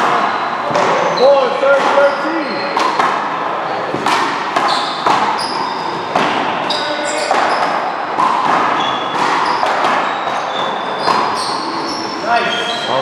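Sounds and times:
paddle hitting ball: 0.0 - 11.4
sneakers squeaking on court: 0.0 - 13.0
ball hitting wall: 2.7 - 11.4.

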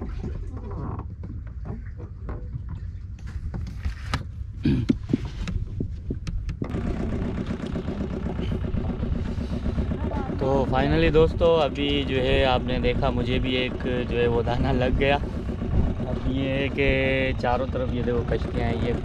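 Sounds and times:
boat engine throbbing: 0.0 - 19.0
knocks and clicks: 4.9 - 6.7.

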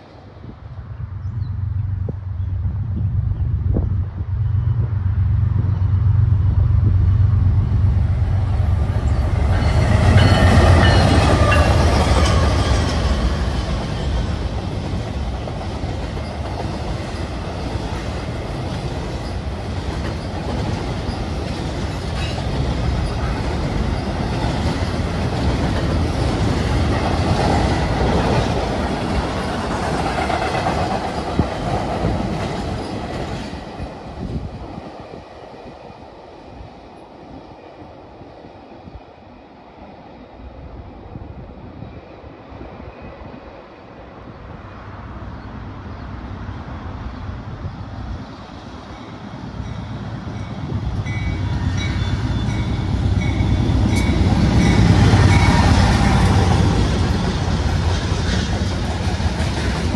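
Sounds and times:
diesel locomotives rumbling: 0.0 - 59.9
train cars rolling on steel wheels: 5.8 - 34.6, 48.8 - 59.9.

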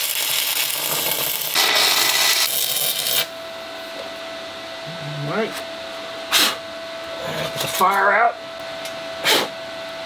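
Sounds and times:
welding arc crackling: 0.0 - 3.3.

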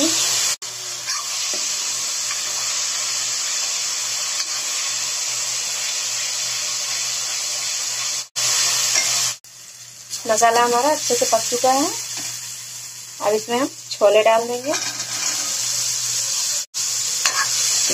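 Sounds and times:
masala sizzling in metal pan: 0.0 - 17.9
steel spoon stirring: 17.2 - 17.6.

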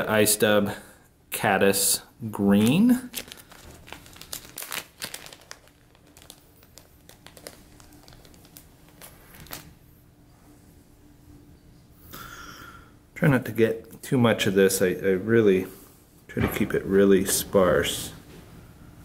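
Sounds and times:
plastic package crinkling: 2.5 - 9.8.

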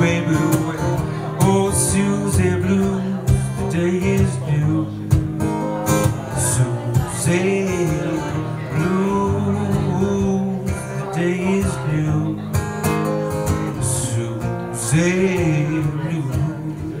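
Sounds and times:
acoustic guitar strummed: 0.0 - 17.0
man singing: 0.0 - 17.0.

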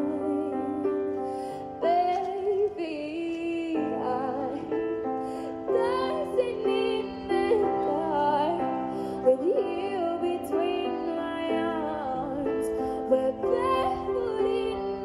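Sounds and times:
sustained backing chords: 0.0 - 15.0
woman singing ballad: 0.0 - 15.0.

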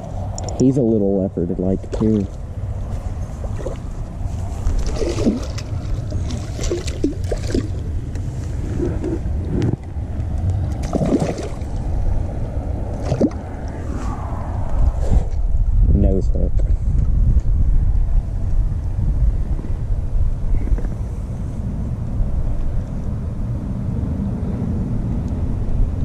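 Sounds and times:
wind rumble on microphone: 0.0 - 26.0
fish thrashing and splashing in water: 3.4 - 8.0, 10.7 - 11.9, 12.9 - 13.6.

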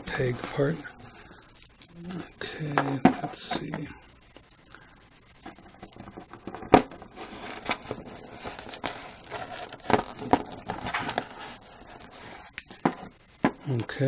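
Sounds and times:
scratchy rustle: 5.3 - 13.1.

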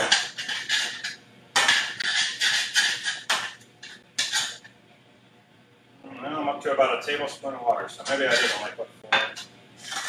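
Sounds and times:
frying pan sizzling: 0.0 - 4.7, 9.7 - 10.0
tongs scraping a pan: 0.0 - 4.7, 8.0 - 8.7, 9.4 - 10.0.

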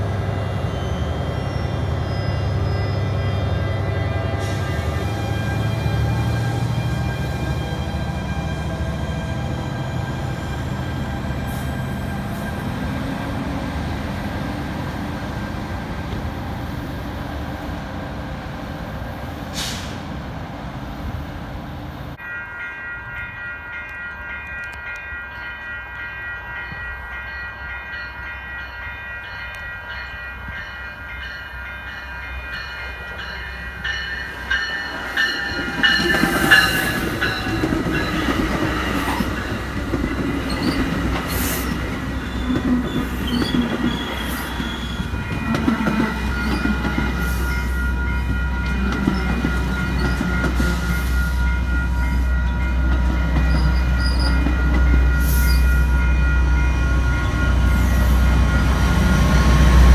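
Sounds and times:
train wheel noise: 29.1 - 59.9.

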